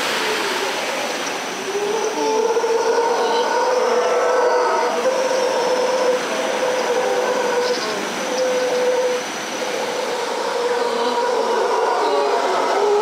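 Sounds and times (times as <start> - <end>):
howler monkeys calling: 0.1 - 13.0.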